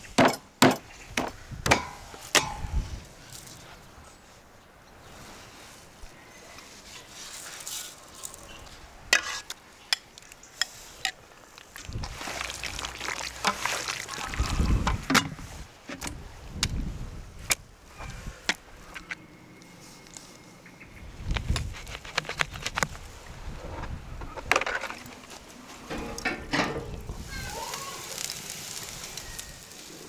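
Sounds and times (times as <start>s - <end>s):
hands squelching raw meat: 11.5s - 15.1s.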